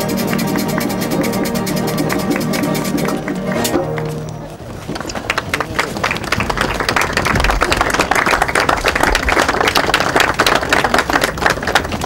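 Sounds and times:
people applauding: 0:00.0 - 0:12.0.

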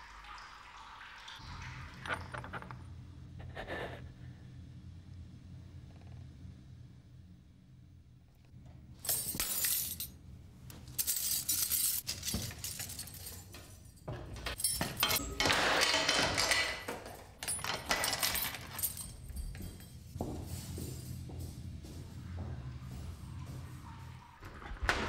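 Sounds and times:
clinking rattling noise: 0:10.7 - 0:21.3.

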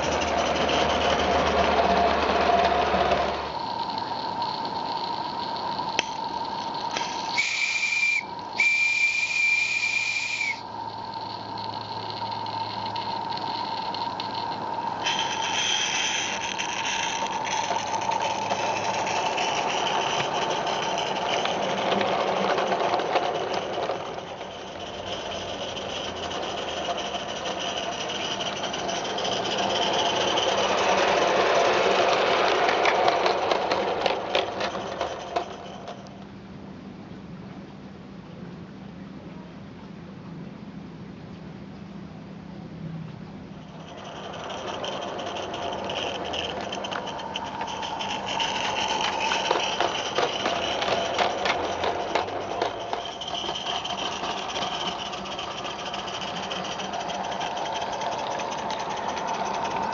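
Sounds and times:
steam hissing: 0:03.0 - 0:22.8
steam whistle: 0:06.9 - 0:10.7.

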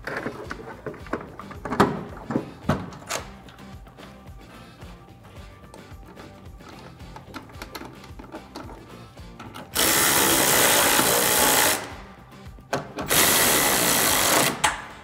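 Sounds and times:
power ratchet running: 0:06.2 - 0:12.0, 0:13.1 - 0:14.8.

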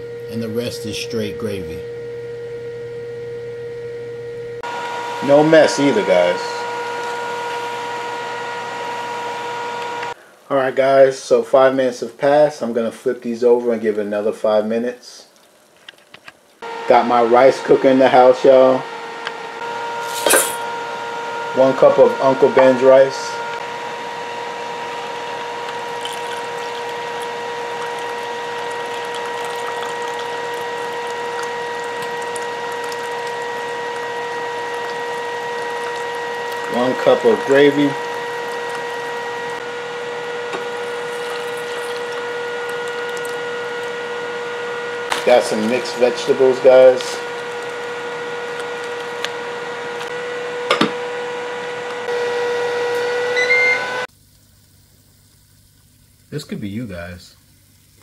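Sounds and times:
air fryer fan whirring: 0:00.0 - 0:10.2, 0:16.6 - 0:54.1
appliance electrical hum: 0:00.0 - 0:58.0
gravy trickling into a plastic cup: 0:25.6 - 0:39.6, 0:40.6 - 0:44.0, 0:45.1 - 0:49.4.

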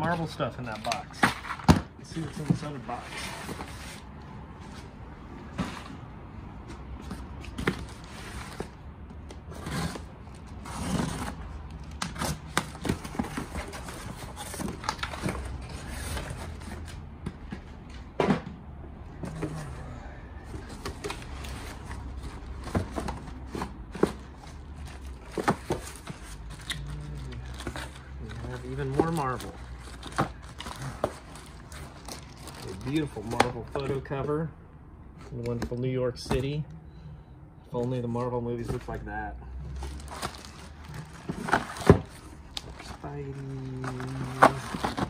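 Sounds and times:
cardboard box being opened: 0:39.8 - 0:45.0.

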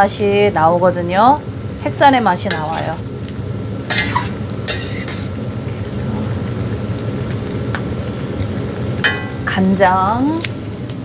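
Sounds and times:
metal spoon scraping a pan: 0:02.5 - 0:03.0, 0:03.9 - 0:05.3.

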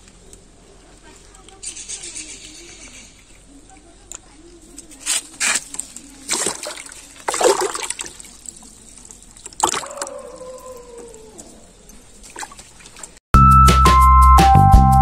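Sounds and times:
fish splashing in water: 0:05.6 - 0:10.8, 0:11.9 - 0:13.2.

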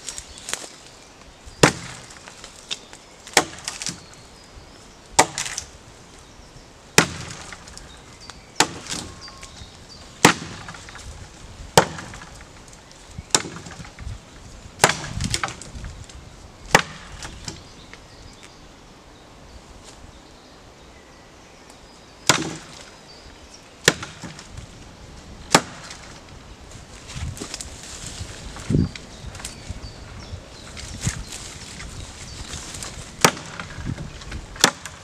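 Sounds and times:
axe chopping into tree trunk: 0:01.6 - 0:02.3, 0:03.3 - 0:04.0, 0:05.2 - 0:05.7, 0:07.0 - 0:07.8, 0:08.6 - 0:09.3, 0:10.2 - 0:11.1, 0:11.7 - 0:12.5, 0:13.3 - 0:14.1, 0:14.8 - 0:15.7, 0:16.7 - 0:17.6, 0:22.2 - 0:22.9, 0:23.8 - 0:24.5, 0:25.5 - 0:26.1, 0:33.2 - 0:35.0
wood cracking and rustling: 0:01.6 - 0:04.1, 0:05.2 - 0:05.7, 0:07.0 - 0:07.9, 0:08.6 - 0:17.6, 0:25.5 - 0:35.0.

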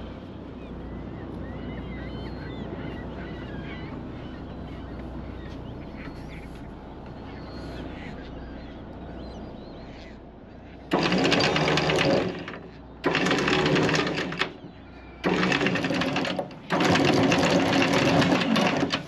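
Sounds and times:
windlass motor: 0:10.8 - 0:19.0.

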